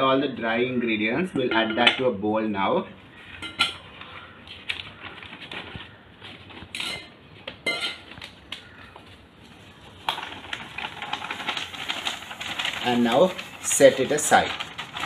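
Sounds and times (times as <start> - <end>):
paper rustling: 4.0 - 6.9, 8.0 - 15.0.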